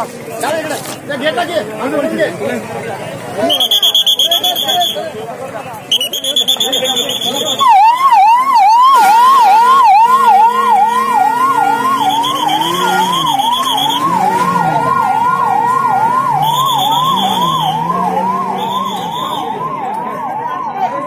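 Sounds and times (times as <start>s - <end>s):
ambulance siren yelp: 6.1s - 21.0s
high steady tone: 9.4s - 19.8s.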